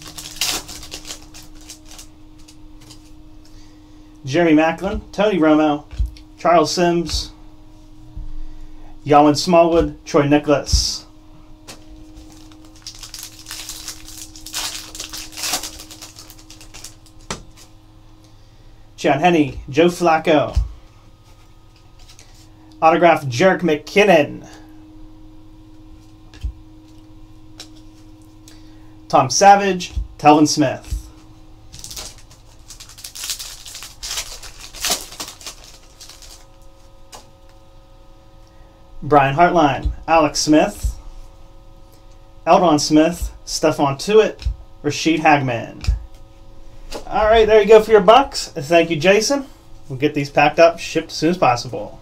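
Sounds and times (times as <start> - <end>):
foil wrapper tearing: 0.0 - 3.1, 12.2 - 17.3, 31.7 - 37.2.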